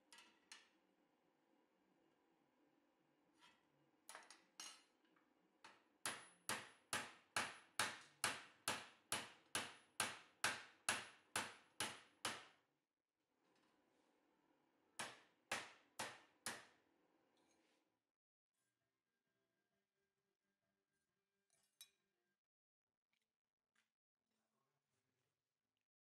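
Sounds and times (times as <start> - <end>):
hammer striking steel bar: 6.1 - 12.6.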